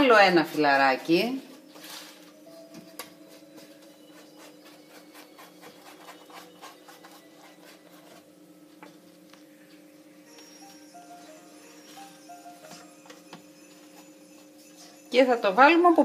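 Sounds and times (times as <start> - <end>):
rhythmic rubbing strokes: 3.2 - 8.4.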